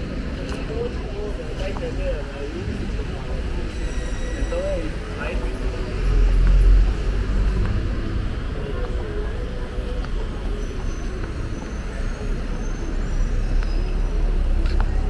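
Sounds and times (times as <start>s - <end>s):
indistinct voices of passersby: 0.0s - 15.0s
motor vehicles passing: 4.9s - 15.0s.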